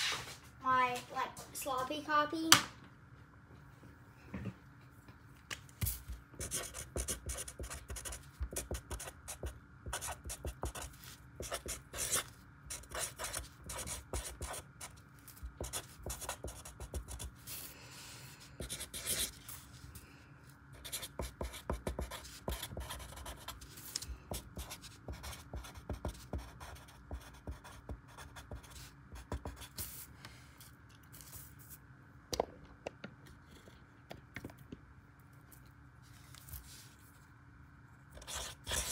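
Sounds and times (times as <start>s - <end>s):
marker writing on paper: 6.4s - 17.4s, 18.6s - 19.4s, 20.8s - 23.6s, 24.3s - 29.9s, 38.2s - 38.9s.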